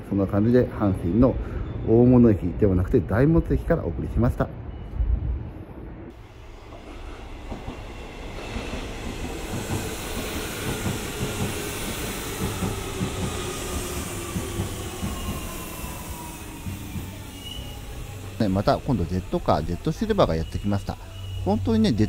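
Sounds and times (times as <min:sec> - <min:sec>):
train rumble: 0:00.6 - 0:22.0
electric train motor whine: 0:06.2 - 0:21.5
wheels clacking on rails: 0:06.6 - 0:20.6.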